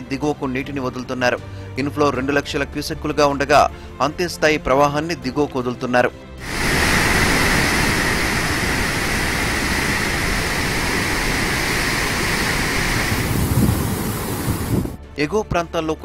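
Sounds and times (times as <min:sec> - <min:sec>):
rushing floodwater: 0:06.4 - 0:15.0.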